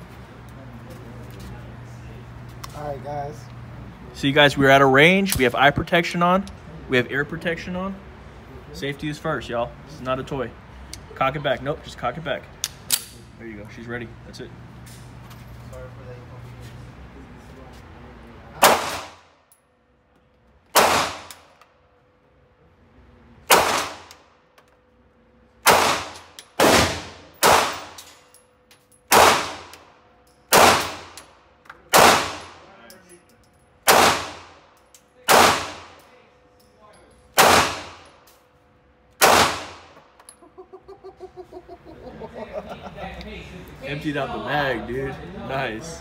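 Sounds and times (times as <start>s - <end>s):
pistol shots ringing indoors: 18.6s - 19.3s, 20.7s - 21.6s, 23.4s - 24.3s, 25.6s - 29.9s, 30.5s - 31.3s, 31.9s - 32.7s, 33.8s - 36.1s, 37.3s - 38.4s, 39.1s - 40.3s.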